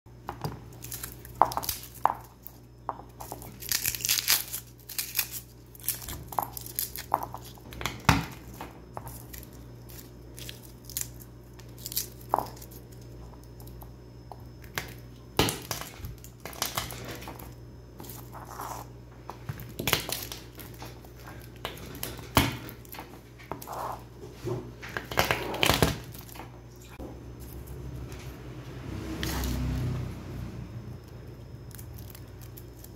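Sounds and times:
faint steady hum: 0.1 - 32.9
garlic skins crackling and tearing: 0.7 - 2.6, 3.2 - 13.8, 31.4 - 32.9.

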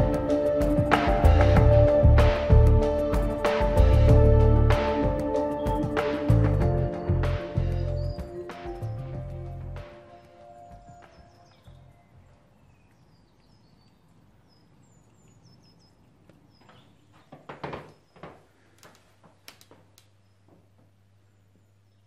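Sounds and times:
faint bird chirps: 10.4 - 17.3
thumps and knocks: 16.6 - 18.5.

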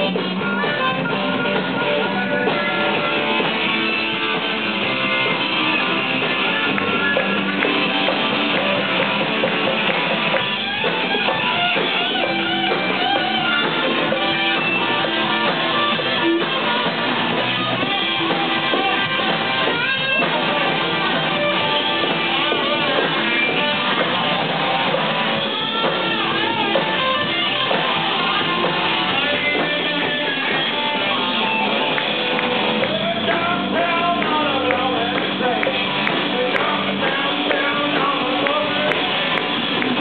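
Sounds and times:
guitar playing: 0.0 - 40.0
harmonica playing: 10.3 - 24.0, 25.3 - 32.3.

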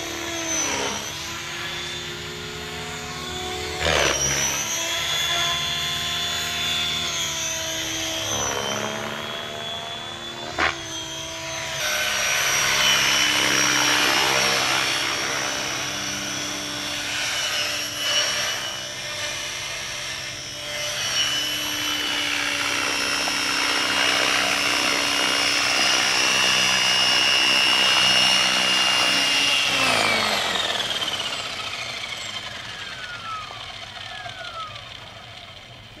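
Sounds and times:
electric rc helicopter motor whine: 0.0 - 36.0
rotor spinning down: 0.0 - 36.0.

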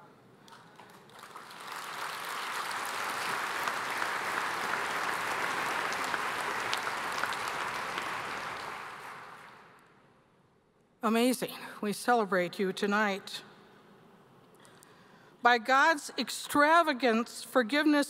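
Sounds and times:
audience applauding: 0.5 - 9.8.

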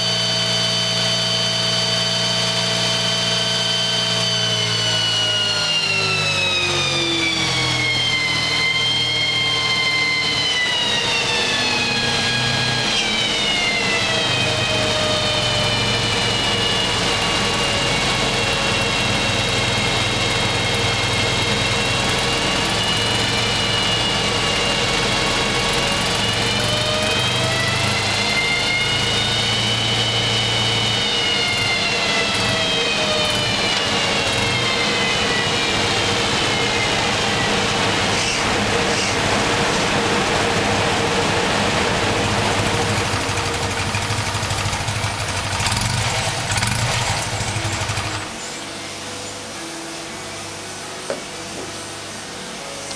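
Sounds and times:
dynamometer roller whine: 0.0 - 52.9
motorcycle engine running: 15.2 - 48.6.

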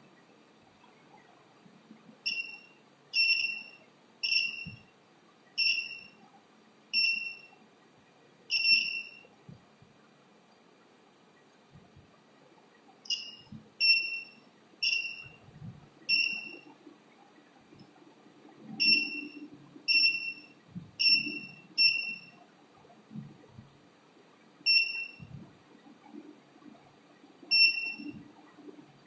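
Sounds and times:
electronic buzzer beeps: 2.2 - 4.9, 5.6 - 6.2, 7.0 - 7.5, 8.5 - 9.3, 13.1 - 15.4, 16.1 - 16.7, 18.8 - 22.4, 24.7 - 25.3, 27.5 - 28.2.

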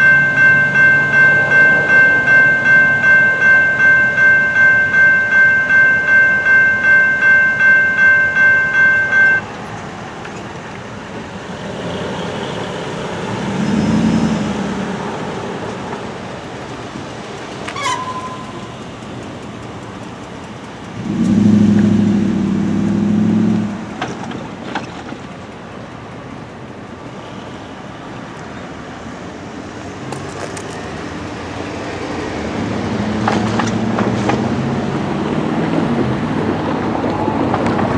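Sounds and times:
railroad crossing bell ringing: 0.0 - 9.7, 13.3 - 21.0
road traffic passing: 0.0 - 37.9
loud vehicle passing: 11.2 - 19.0, 20.3 - 24.5, 29.5 - 37.9.

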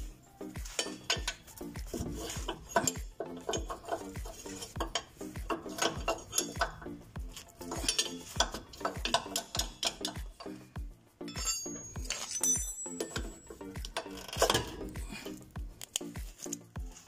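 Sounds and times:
music with thumping beat: 0.0 - 17.0
metallic clinks of hand tool: 0.7 - 10.6, 11.2 - 15.0.

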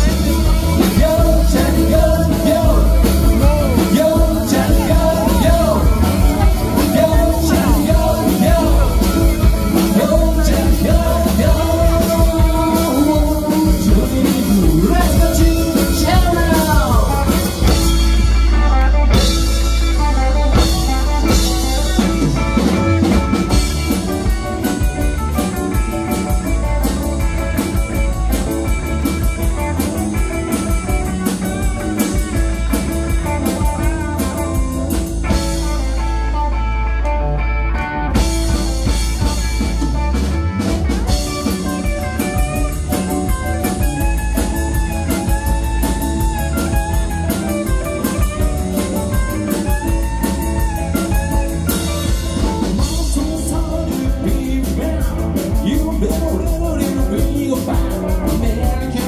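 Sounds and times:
male singer: 0.0 - 18.0, 52.4 - 59.0
drums: 0.0 - 59.0
electric guitar: 0.0 - 59.0.

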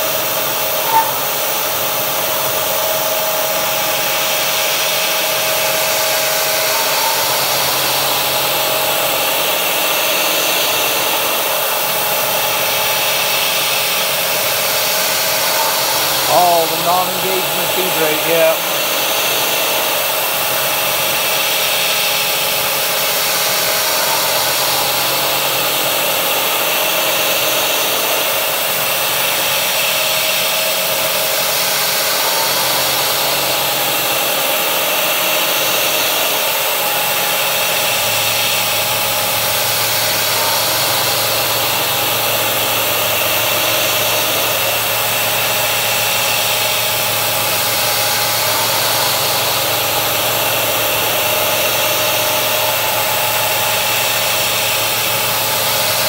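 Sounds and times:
metal lathe humming: 0.1 - 11.1
wavering squeal: 0.6 - 1.6.

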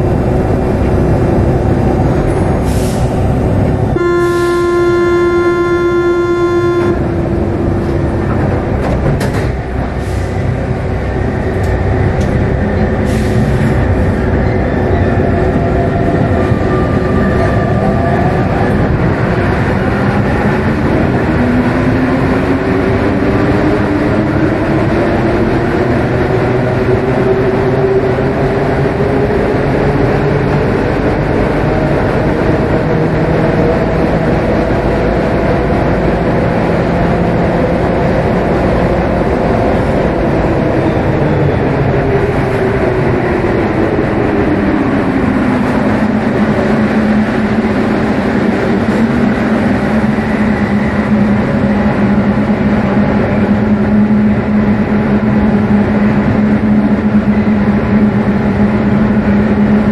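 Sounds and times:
metro train running in tunnel: 0.0 - 59.9
train motor whine: 0.1 - 15.7.

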